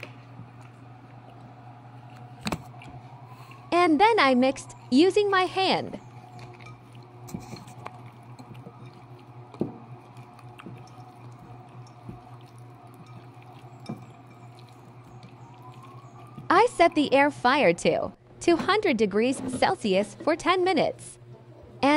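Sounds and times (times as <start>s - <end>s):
steady low hum: 0.0s - 21.9s
wet squishing of raw chicken: 6.1s - 16.9s.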